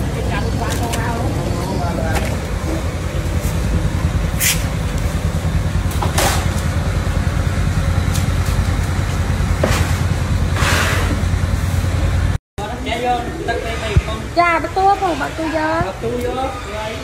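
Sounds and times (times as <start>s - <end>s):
loud low rumble: 0.0s - 14.6s
short hissing swishes: 4.4s - 4.7s.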